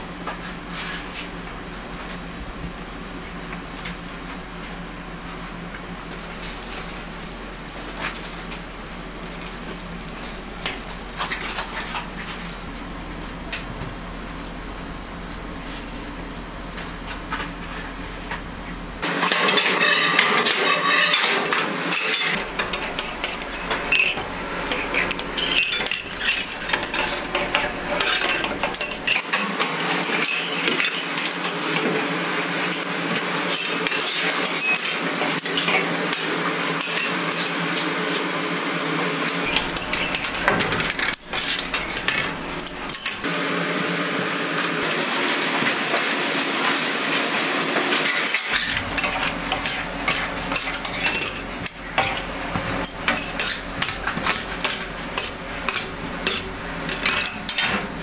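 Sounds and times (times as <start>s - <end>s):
steady hum: 0.0s - 29.8s, 39.4s - 44.9s, 48.3s - 58.0s
metal scrapers on steel table: 19.2s - 31.7s, 33.2s - 35.8s, 39.4s - 43.3s, 48.0s - 52.2s, 52.8s - 58.0s.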